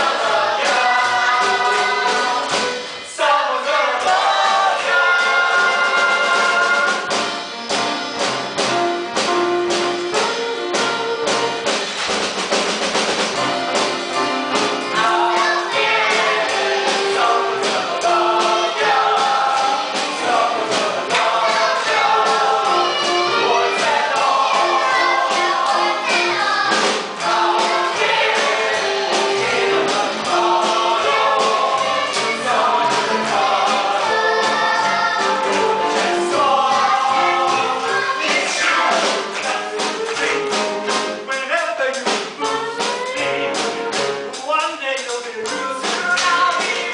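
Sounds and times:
chorus singing over live band: 0:00.0 - 0:07.6, 0:14.6 - 0:41.5.

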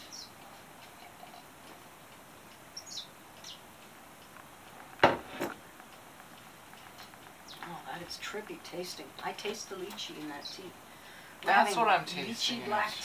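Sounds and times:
glass knocking on hard surface: 0:05.0 - 0:05.3.

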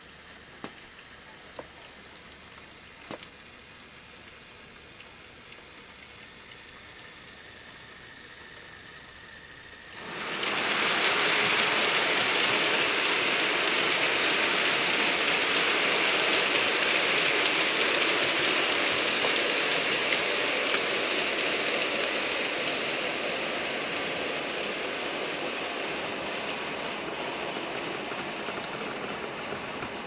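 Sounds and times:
model train wheels rattling: 0:08.8 - 0:30.0.

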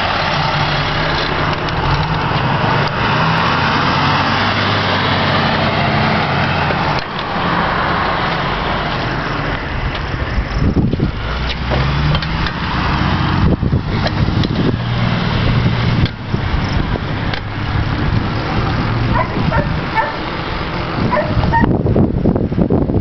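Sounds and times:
heavy vehicle engine running: 0:00.0 - 0:23.0
dog barking: 0:19.1 - 0:20.2, 0:21.1 - 0:21.7.

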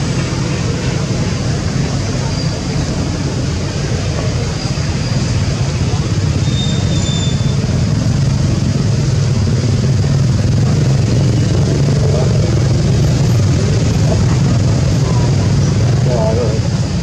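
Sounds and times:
loud steady low rumble: 0:00.0 - 0:17.0.

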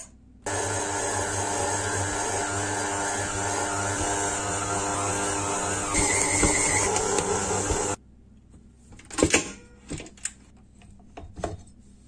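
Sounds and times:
stand mixer humming: 0:00.5 - 0:08.0.

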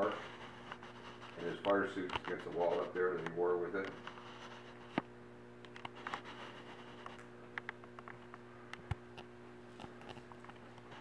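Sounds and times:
low electrical hum: 0:00.0 - 0:11.0
light clicks and taps: 0:01.6 - 0:02.4.

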